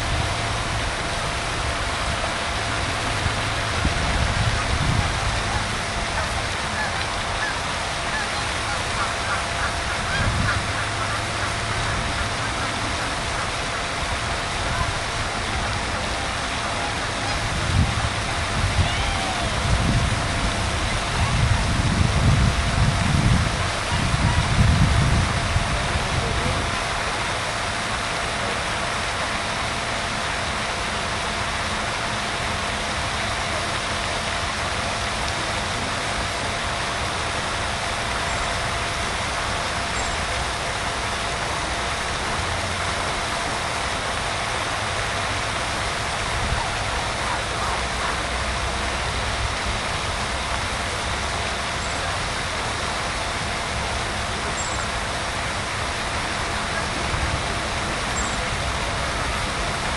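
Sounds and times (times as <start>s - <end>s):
wind buffeting microphone: 0.0s - 27.1s
faint constant hum: 0.0s - 59.9s
outdoor background hiss: 0.0s - 59.9s.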